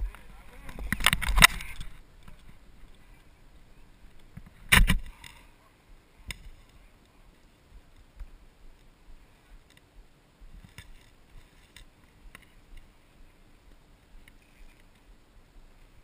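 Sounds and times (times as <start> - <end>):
camera handling clicks and knocks: 0.7 - 2.4.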